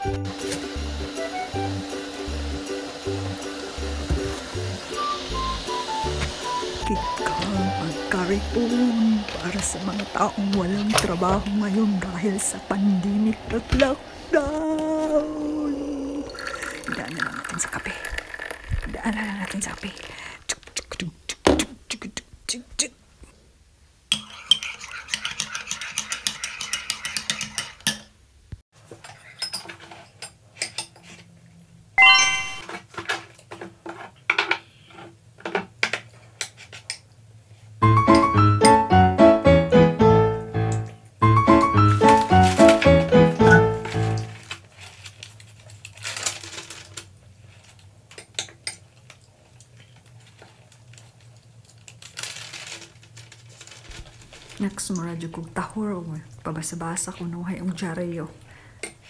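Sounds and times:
newspaper pages rustling: 0:41.8 - 0:47.8, 0:50.2 - 0:55.0.

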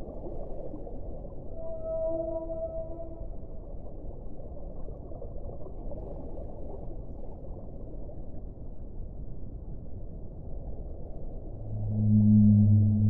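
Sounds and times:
low rumbling drone: 0:01.3 - 0:04.1, 0:10.3 - 0:13.0.

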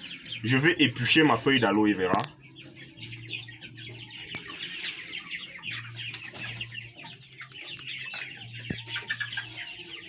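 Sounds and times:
chicks peeping: 0:00.0 - 0:10.0.

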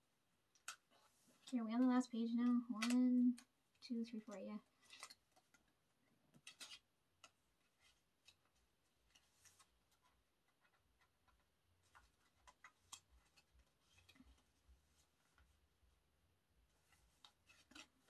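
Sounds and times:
cards clicking into plastic pockets: 0:00.6 - 0:00.9, 0:01.8 - 0:14.4, 0:16.8 - 0:18.0.

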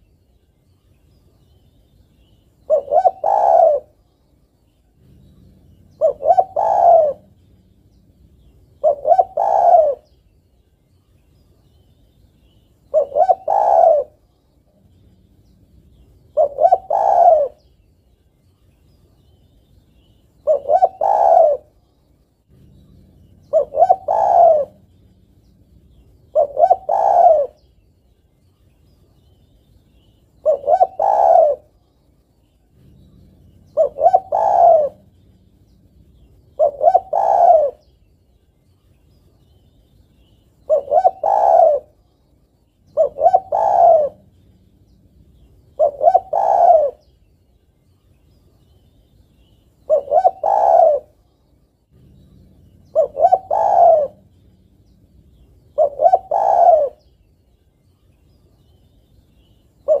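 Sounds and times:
dove cooing: 0:02.6 - 0:04.1, 0:04.8 - 0:10.3, 0:12.5 - 0:17.8, 0:20.0 - 0:21.8, 0:22.5 - 0:27.8, 0:30.0 - 0:31.8, 0:32.6 - 0:38.1, 0:40.2 - 0:42.2, 0:42.8 - 0:47.2, 0:49.4 - 0:51.3, 0:51.9 - 0:57.3, 0:59.4 - 1:00.0.

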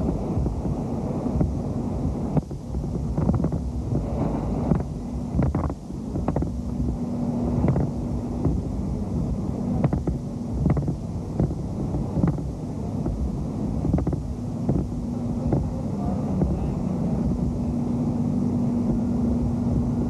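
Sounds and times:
wind rumbling on microphone: 0:00.0 - 0:20.0
clicks and crackles: 0:04.7 - 0:06.6, 0:09.8 - 0:11.6.

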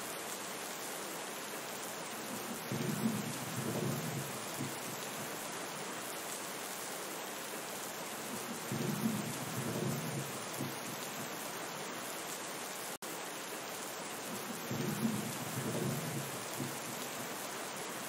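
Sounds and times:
steady rain: 0:00.0 - 0:18.0
low rumbles of thunder: 0:02.3 - 0:05.0, 0:08.3 - 0:11.0, 0:14.3 - 0:17.0.

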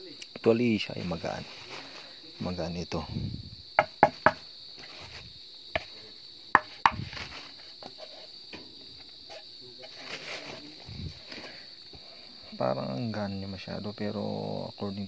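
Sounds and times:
insect chirring: 0:00.0 - 0:15.0
knocks and taps on armour panel: 0:03.8 - 0:04.4.

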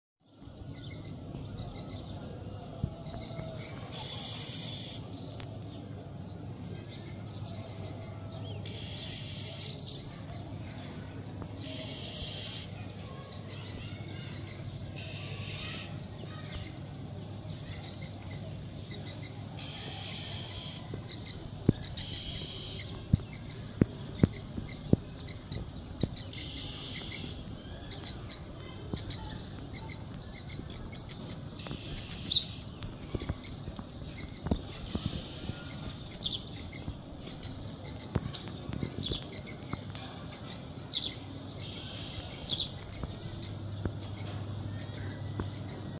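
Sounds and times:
birds chattering chirps: 0:00.2 - 0:45.9
steady low rumble: 0:10.0 - 0:45.9.

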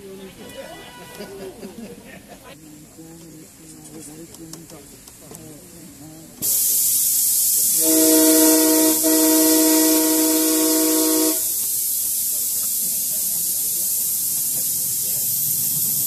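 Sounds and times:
steam hissing: 0:03.2 - 0:16.0
steam locomotive chime whistle: 0:07.6 - 0:11.6.

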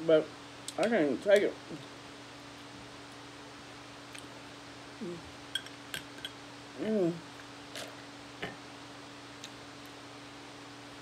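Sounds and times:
woman humming mm: 0:05.0 - 0:05.4, 0:06.7 - 0:07.3.

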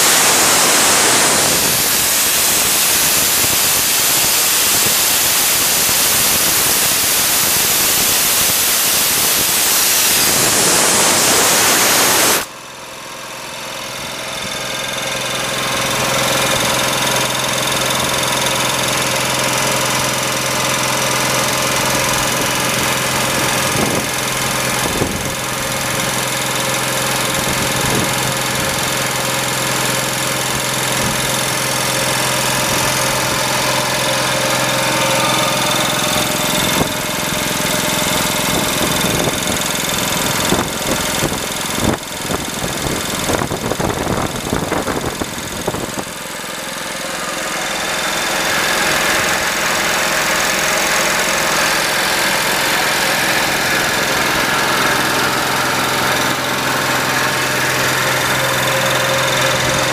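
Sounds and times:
loud air hiss: 0:00.0 - 0:12.5, 0:31.1 - 0:39.8
air compressor pump humming: 0:00.0 - 0:59.9.

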